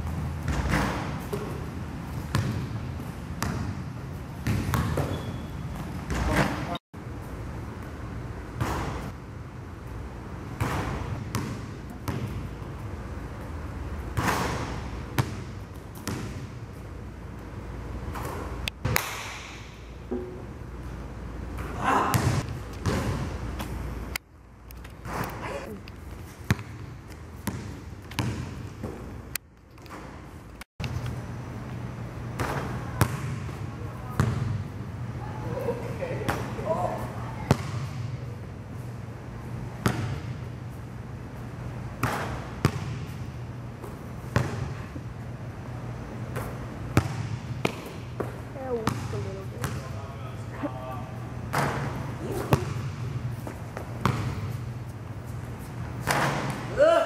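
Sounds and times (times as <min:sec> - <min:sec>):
basketball hitting rim: 0:00.0 - 0:06.8, 0:08.6 - 0:09.1, 0:10.5 - 0:12.5, 0:14.1 - 0:16.6, 0:21.6 - 0:23.7, 0:26.5 - 0:29.1, 0:32.4 - 0:33.6, 0:34.2 - 0:34.6, 0:37.5 - 0:38.2, 0:39.8 - 0:40.5, 0:42.0 - 0:43.2, 0:43.8 - 0:44.9, 0:46.3 - 0:49.9, 0:51.5 - 0:54.7, 0:56.0 - 0:56.7
steady low hum: 0:00.0 - 0:57.0
basketball bouncing on hardwood floor: 0:02.3 - 0:02.7, 0:04.4 - 0:06.4, 0:22.1 - 0:23.3, 0:26.5 - 0:29.0, 0:47.0 - 0:49.8, 0:54.0 - 0:54.5.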